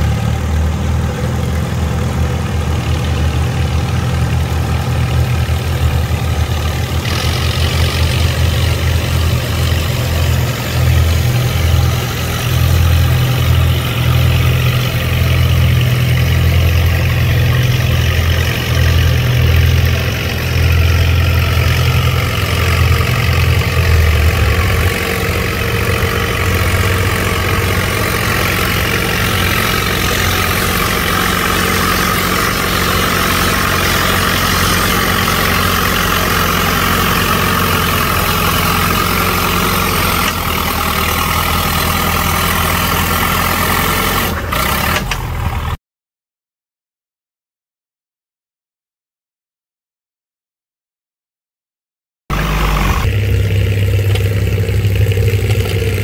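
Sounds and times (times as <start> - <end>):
tractor engine chugging: 0.0 - 45.8, 52.3 - 56.0
rising whine: 2.2 - 40.8.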